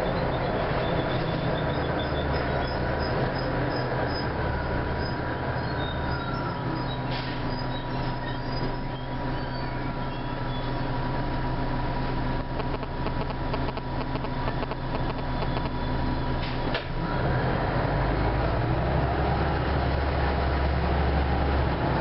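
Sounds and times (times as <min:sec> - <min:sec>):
bus diesel engine idling: 0:00.0 - 0:17.2
constant whine: 0:08.2 - 0:17.0.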